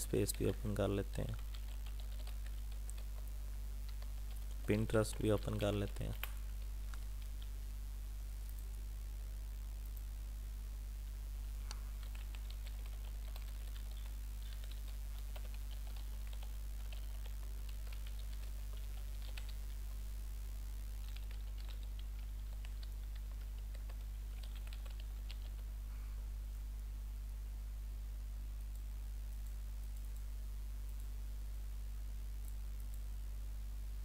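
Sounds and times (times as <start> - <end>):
steady low hum: 0.0 - 34.0
typing on a keyboard: 1.2 - 3.0, 12.0 - 17.2, 17.8 - 19.6, 21.1 - 25.6.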